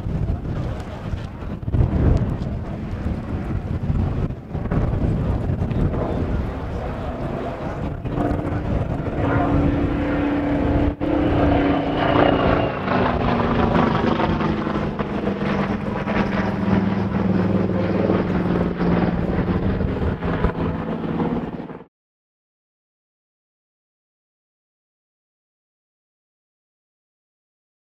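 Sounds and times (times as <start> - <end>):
propeller plane flying past: 0.0 - 21.9.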